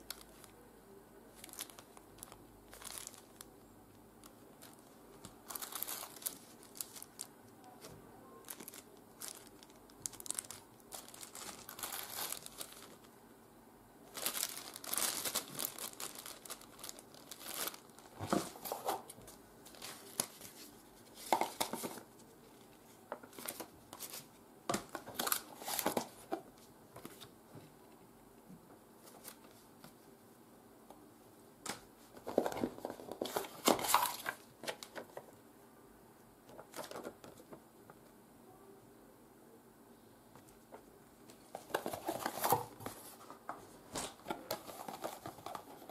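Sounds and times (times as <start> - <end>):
plastic wrap crinkling: 1.4 - 3.5, 4.2 - 7.3, 8.4 - 13.1, 14.1 - 19.0, 32.2 - 35.0, 44.0 - 45.9
paper and card rustling: 44.0 - 45.9.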